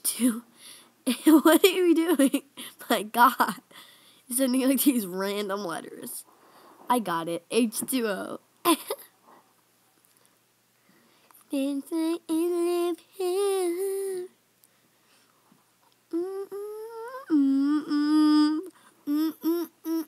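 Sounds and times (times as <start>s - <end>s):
girl humming: 13.2s - 14.4s, 16.1s - 20.0s.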